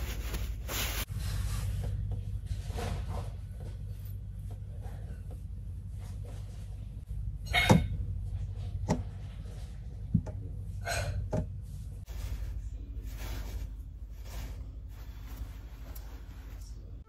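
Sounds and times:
rustling in bunk: 0.0s - 1.8s, 11.7s - 17.0s.

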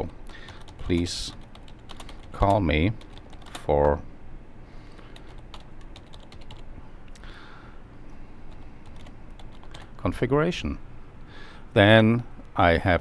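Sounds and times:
typing on computer keyboard: 0.4s - 3.7s, 5.0s - 6.6s, 8.8s - 9.9s.

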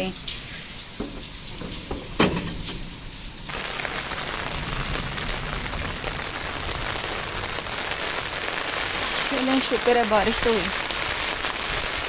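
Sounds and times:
heavy rain on concrete: 0.0s - 12.0s
metal door bolt clacking: 1.9s - 2.8s.

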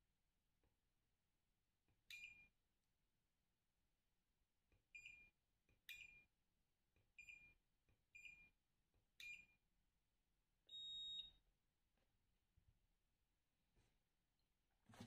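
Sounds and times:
multimeter beeping: 10.7s - 11.4s.

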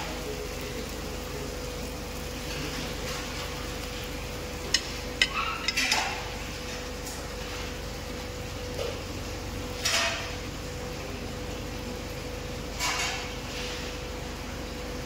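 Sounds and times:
steady hum: 0.0s - 15.0s
metal kitchenware clinking: 4.8s - 6.2s.

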